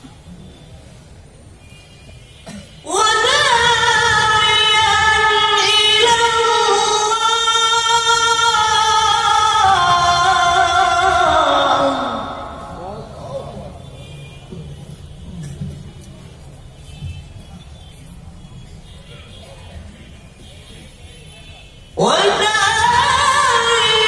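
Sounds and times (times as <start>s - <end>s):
man reciting over loudspeakers: 2.8s - 14.0s, 22.0s - 24.0s.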